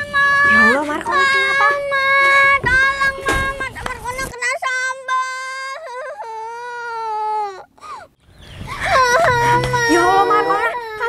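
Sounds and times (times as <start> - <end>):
girl wailing: 8.8 - 11.0.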